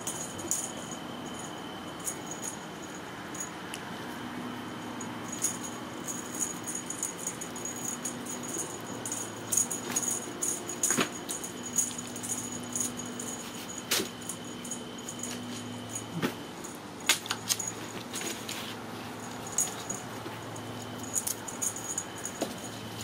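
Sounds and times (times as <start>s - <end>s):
toy jingling: 0.0s - 3.5s, 4.8s - 18.5s, 19.1s - 23.0s
kittens batting toy on carpet: 5.3s - 16.4s, 17.0s - 22.9s.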